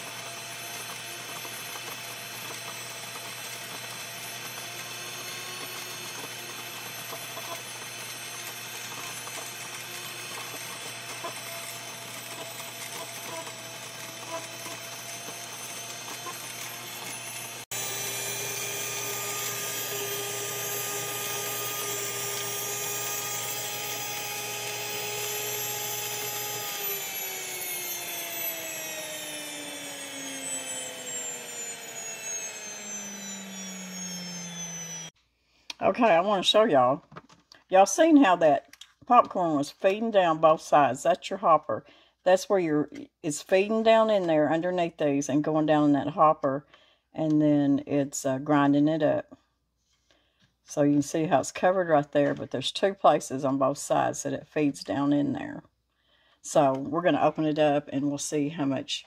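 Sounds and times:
grain mill whining: 0.0 - 35.2.

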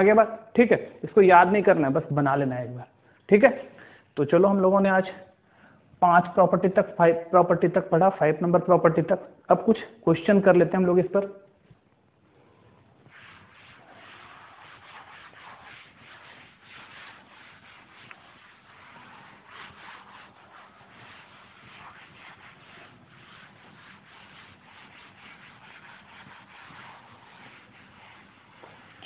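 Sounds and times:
cloth wiping a chalkboard: 9.5 - 29.0.

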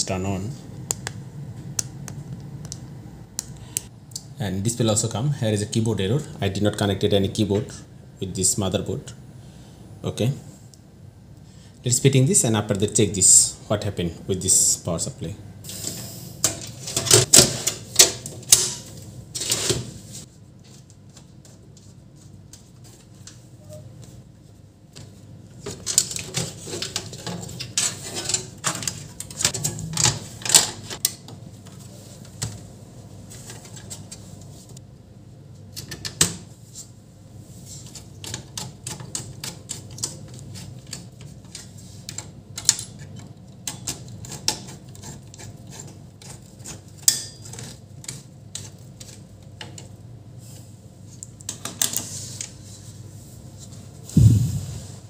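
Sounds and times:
dull thump: 54.2 - 55.0.

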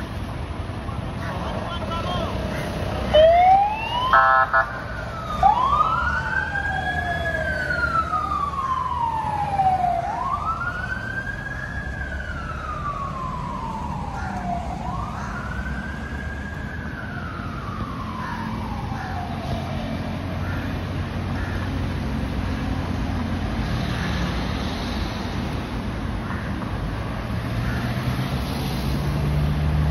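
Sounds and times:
low rumble of road traffic: 0.0 - 29.9
fire engine sirens wailing: 1.0 - 24.0.

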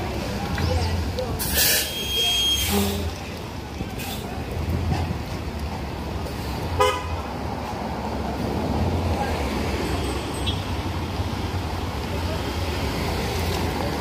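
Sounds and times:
traffic engines rumbling: 0.0 - 14.0
vehicle horn toot: 6.8 - 7.2.

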